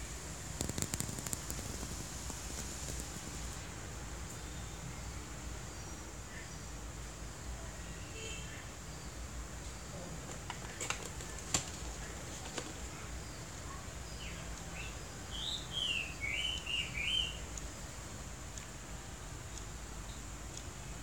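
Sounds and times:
bird whistling chirps: 0:15.4 - 0:17.4.

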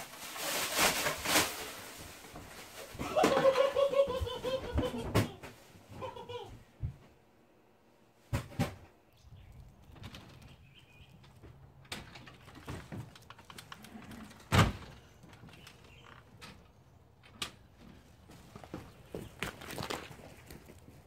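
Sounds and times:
footsteps on wooden porch: 0:10.0 - 0:21.0
door banging shut: 0:14.4 - 0:15.0.

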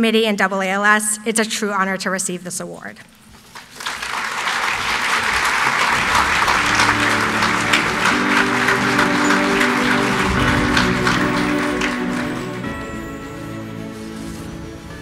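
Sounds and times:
audience applauding: 0:03.4 - 0:13.8
sustained musical chords: 0:05.4 - 0:15.0.

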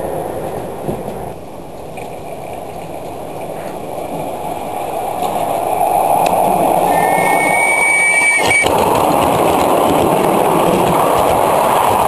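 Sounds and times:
train wheels clacking over rail joints: 0:00.3 - 0:04.4, 0:08.7 - 0:12.0
high steady tone: 0:06.7 - 0:08.7.

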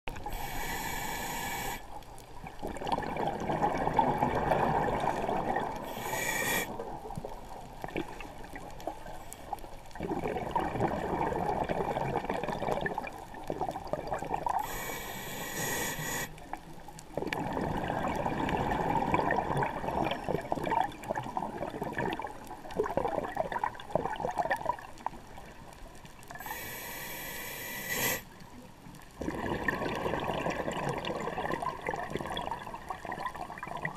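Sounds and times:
underwater bubbling exhaust: 0:00.1 - 0:33.9
hissing regulator inhale: 0:00.2 - 0:02.0, 0:05.8 - 0:06.8, 0:14.6 - 0:16.4, 0:26.4 - 0:28.3.

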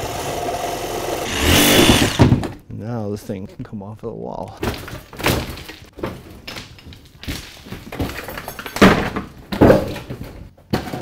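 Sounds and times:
heavy thuds and cracking: 0:01.4 - 0:02.6.

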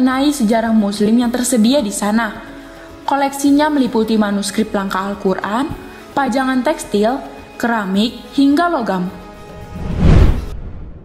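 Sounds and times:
background music: 0:00.0 - 0:11.0
whoosh transition effect: 0:09.5 - 0:11.0.

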